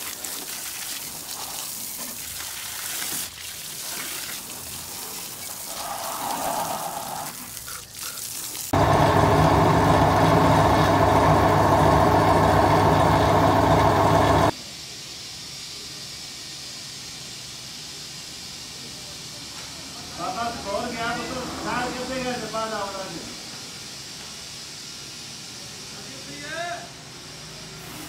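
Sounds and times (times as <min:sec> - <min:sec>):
steady hiss: 0:00.0 - 0:08.8, 0:14.5 - 0:28.0
hose spraying water: 0:00.0 - 0:28.0
loud machine drone: 0:08.8 - 0:14.5.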